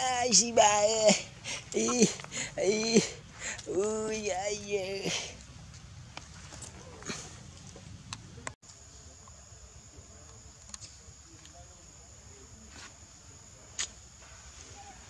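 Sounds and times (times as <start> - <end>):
high-pitched insect buzz: 0.0 - 5.1.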